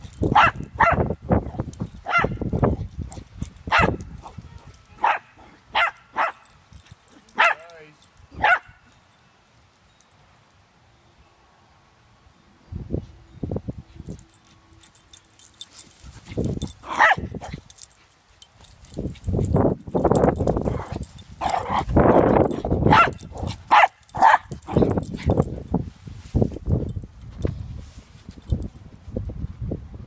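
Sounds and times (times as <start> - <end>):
puppy barking: 0.3 - 1.1, 2.0 - 2.4, 3.7 - 6.4, 7.2 - 7.8, 8.4 - 8.8, 16.8 - 17.6, 20.7 - 24.9.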